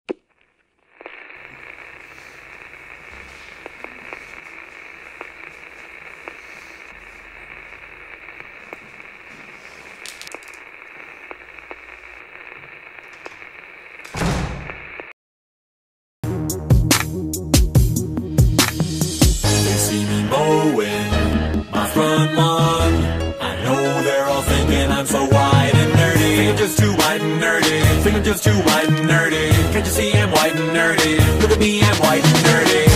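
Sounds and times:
static hiss with crackles: 0.1 - 15.2, 25.5 - 32.9.

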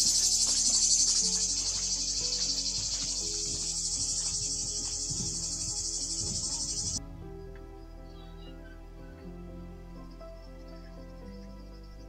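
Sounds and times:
cicadas buzzing: 0.0 - 7.0
soft background music: 0.0 - 12.0.

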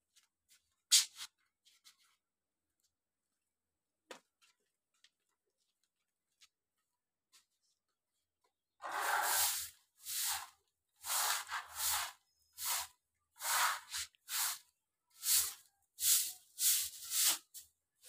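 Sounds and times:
broom sweeping hard floor: 8.8 - 17.8.

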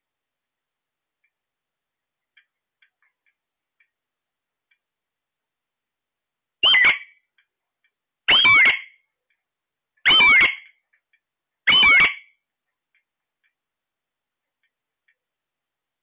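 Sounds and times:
parakeet calling: 6.6 - 7.1, 8.3 - 8.9, 10.1 - 10.7, 11.7 - 12.2.

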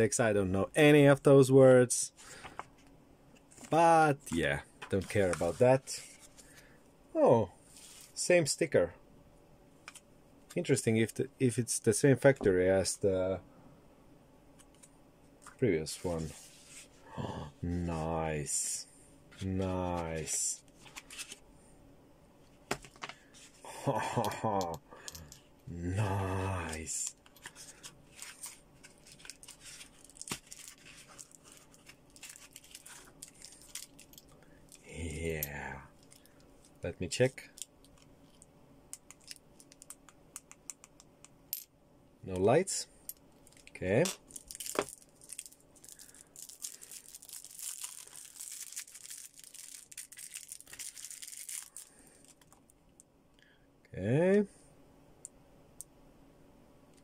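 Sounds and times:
packaging rustling: 26.6 - 34.8, 44.3 - 52.6.

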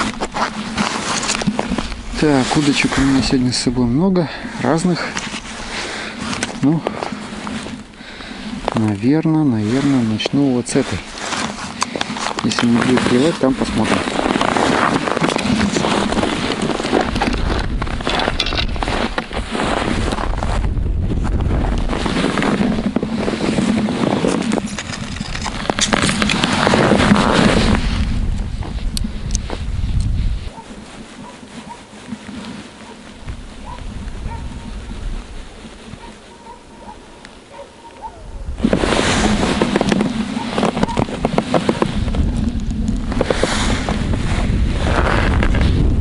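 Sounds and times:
ice scoop crunching snow and ice: 0.0 - 3.8, 8.6 - 20.7, 21.4 - 28.8, 38.6 - 46.0
boots shifting in snow: 0.0 - 45.8
rustling handling noise: 0.0 - 45.8
wind buffeting microphone: 0.0 - 46.0.

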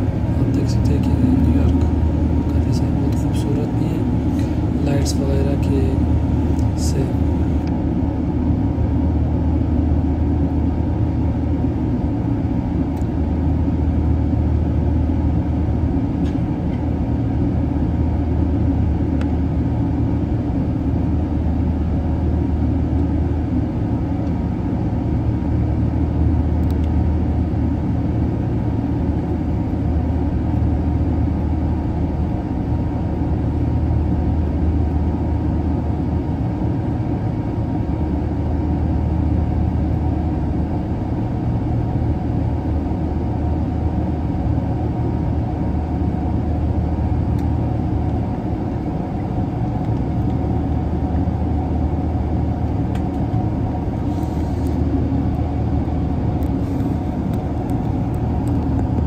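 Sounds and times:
jet engine rumble: 0.0 - 59.0
rushing airflow: 53.7 - 59.0.

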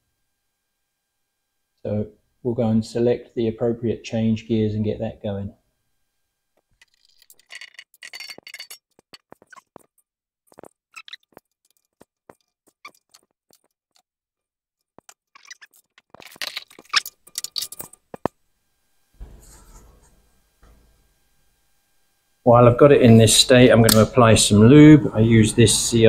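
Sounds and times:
small metal gears clinking: 6.8 - 9.6.

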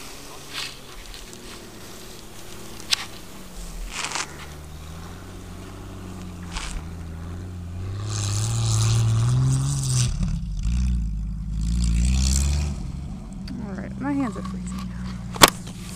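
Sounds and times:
rustles close to microphone: 0.0 - 9.3
engine revving in deep snow: 0.0 - 15.9.

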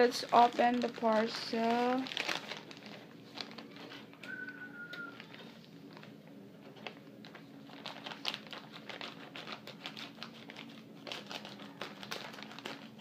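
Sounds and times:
plastic crinkling: 0.0 - 13.0
scissors cutting plastic: 7.7 - 13.0.

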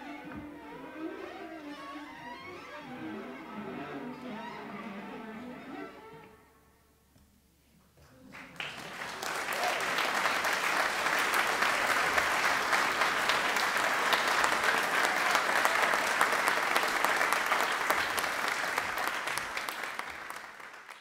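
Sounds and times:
audience applauding: 8.3 - 21.0.

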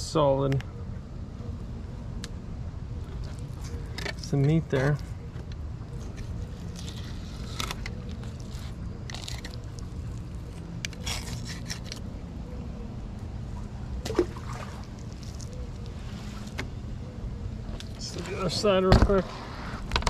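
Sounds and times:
knife slicing wet fish flesh: 6.6 - 12.0.

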